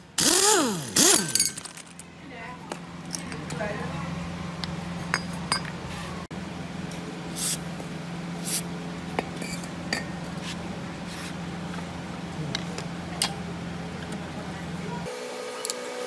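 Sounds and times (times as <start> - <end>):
steady low hum: 0.0 - 15.1
short hissing bursts: 7.3 - 7.7, 8.4 - 8.7.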